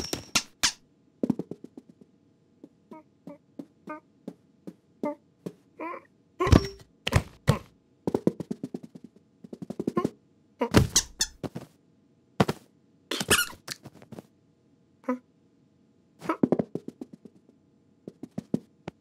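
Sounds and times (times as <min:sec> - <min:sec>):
short squeaks: 0:00.0 - 0:00.8, 0:10.8 - 0:11.4, 0:13.1 - 0:13.8
cartoon knocks and thumps: 0:00.0 - 0:05.6, 0:06.4 - 0:11.6, 0:16.2 - 0:17.4.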